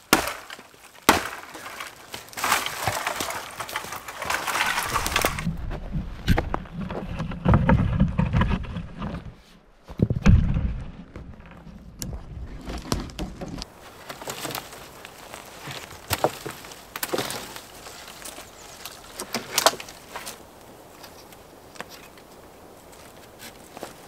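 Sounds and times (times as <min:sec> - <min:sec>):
dry branches cracking: 0:00.0 - 0:05.5, 0:10.0 - 0:24.0
wooden pole handled: 0:00.2 - 0:24.0
rustling: 0:00.3 - 0:24.0
footsteps on forest floor: 0:00.4 - 0:07.1, 0:10.8 - 0:24.0
heavy thump: 0:09.9 - 0:11.6.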